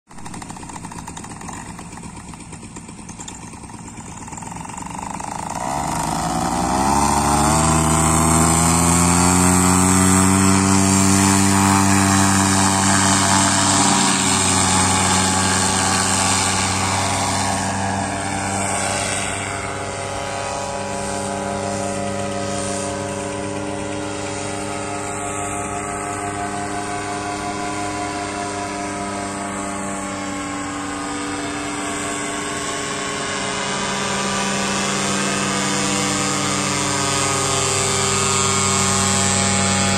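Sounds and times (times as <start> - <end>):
paramotor engine and propeller: 0.1 - 39.9.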